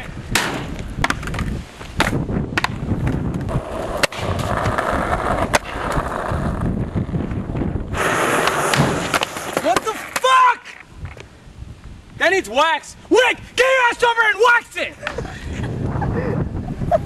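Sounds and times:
skateboard wheels rolling on asphalt: 0.0s - 17.0s
skateboard slapping pavement: 0.3s - 10.8s.

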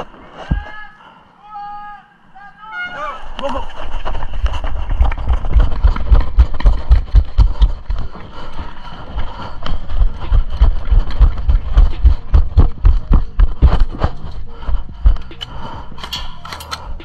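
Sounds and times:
running footsteps: 3.6s - 17.0s.

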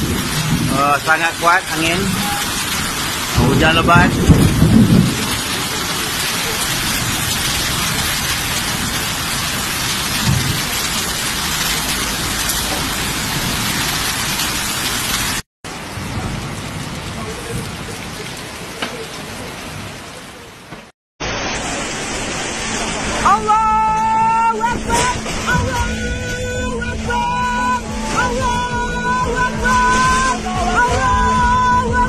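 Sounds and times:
strong storm wind: 0.0s - 20.1s
torrential rain: 0.0s - 32.0s.

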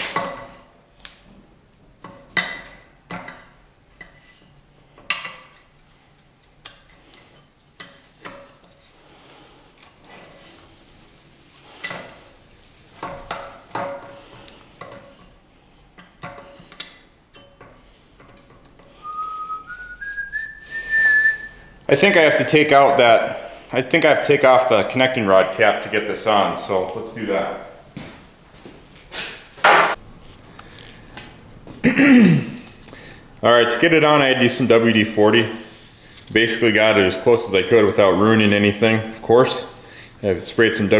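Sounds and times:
person whistling: 19.0s - 21.7s.

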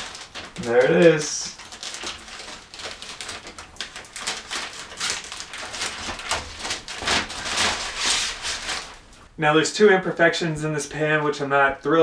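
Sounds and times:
plastic film peeling and crinkling: 0.0s - 9.3s.

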